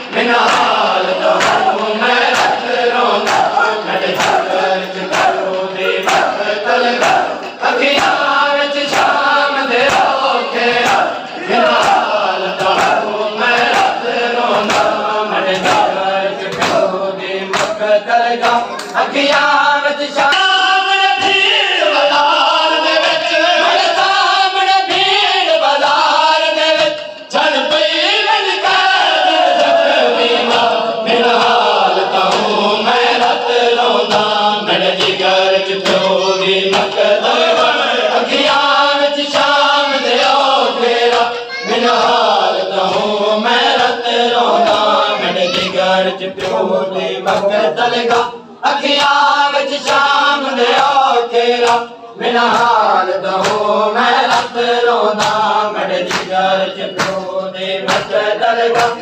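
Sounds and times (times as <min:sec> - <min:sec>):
men chanting together: 0:00.0 - 0:59.0
hand slaps on chest: 0:01.4 - 0:02.6, 0:09.8 - 0:11.1, 0:53.4 - 0:53.6, 0:55.2 - 0:55.4, 0:56.1 - 0:56.3, 0:57.0 - 0:57.2.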